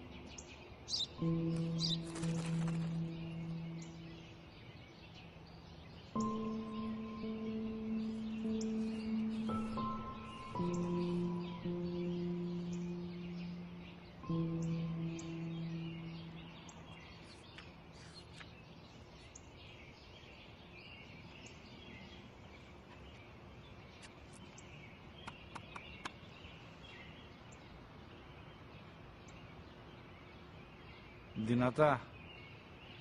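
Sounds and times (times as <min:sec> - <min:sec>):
faint outdoor hiss: 0:00.0 - 0:33.0
small birds chirping: 0:00.0 - 0:33.0
held music note: 0:06.2 - 0:17.3.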